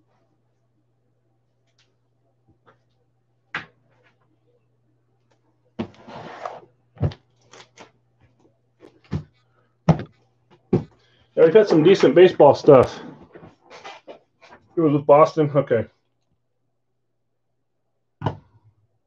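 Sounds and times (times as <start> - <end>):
faint low hum: 0.0 - 19.0
boxes knocking on wooden desk: 9.9 - 11.0.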